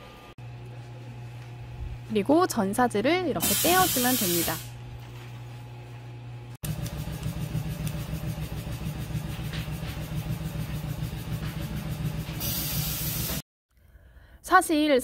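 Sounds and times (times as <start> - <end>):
hiss: 3.4 - 4.7, 12.4 - 13.4
factory machinery humming: 5.6 - 13.4.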